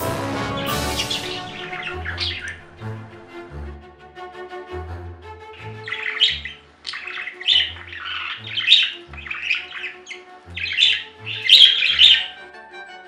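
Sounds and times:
background music: 0.0s - 13.0s
budgerigar chattering and squawking: 1.0s - 2.8s, 5.6s - 12.4s.

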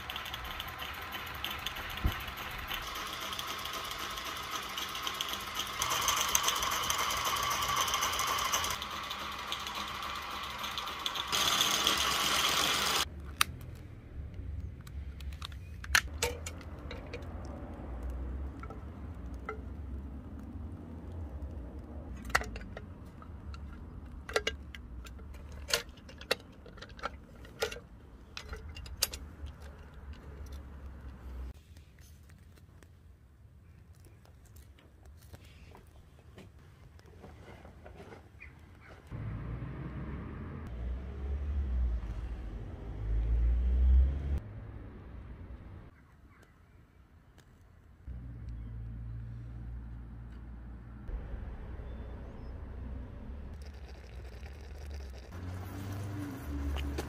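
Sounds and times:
low rumble: 50.8s - 53.6s.

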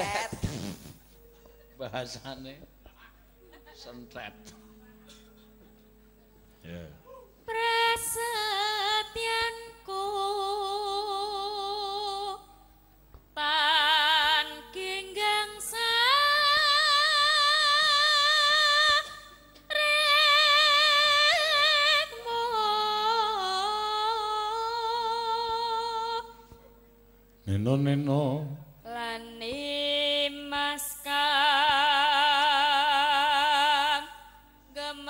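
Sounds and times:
faint steady tones: 1.0s - 31.1s
woman singing with vibrato: 7.2s - 12.6s, 13.4s - 26.6s, 28.2s - 35.0s.

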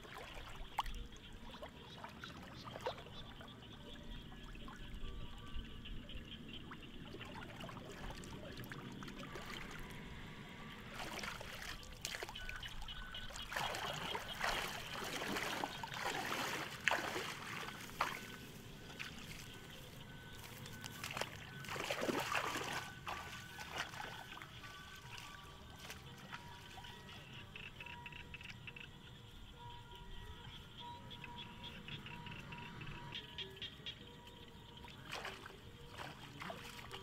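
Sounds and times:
splashing and sloshing water: 0.0s - 27.5s, 33.2s - 37.0s
water trickling: 0.0s - 27.6s, 34.2s - 37.0s.

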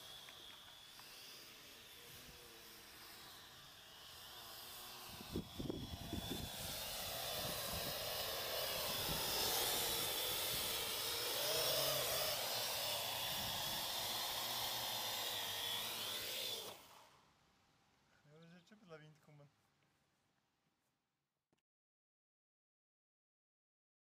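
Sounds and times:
drone propellers buzzing: 0.0s - 17.1s.

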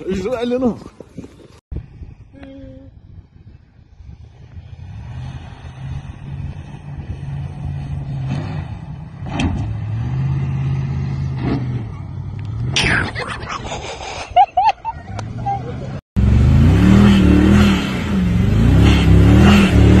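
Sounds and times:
tires sliding on loose dirt: 3.1s - 12.8s
truck engine revving: 4.6s - 13.4s, 15.1s - 20.0s.

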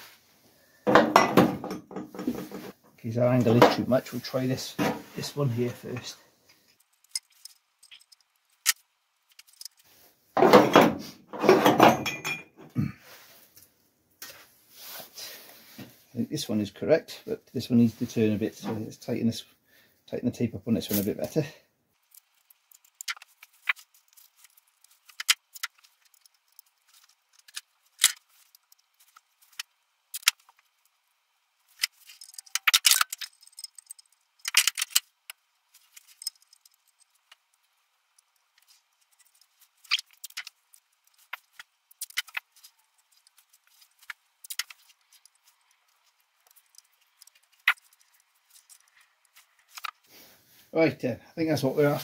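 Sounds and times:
metal tubes clinking and clattering: 6.0s - 10.7s, 11.4s - 12.7s, 31.7s - 50.1s.

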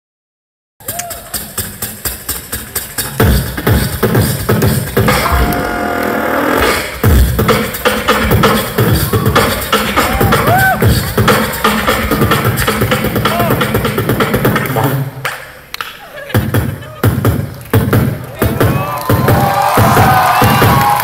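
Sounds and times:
person beatboxing: 0.8s - 15.2s.

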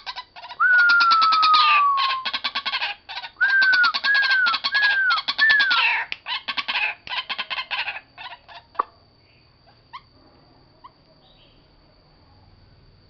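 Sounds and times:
waterhen harsh croaking calls: 0.0s - 8.8s.

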